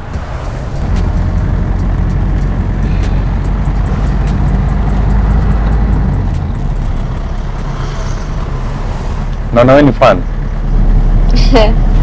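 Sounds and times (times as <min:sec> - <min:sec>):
minibus engine and road rumble: 0:00.0 - 0:12.0.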